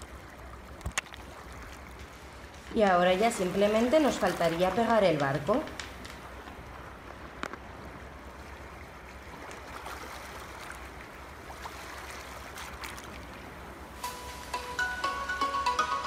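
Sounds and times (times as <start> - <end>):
steady hiss: 2.0 - 8.3, 13.4 - 16.0.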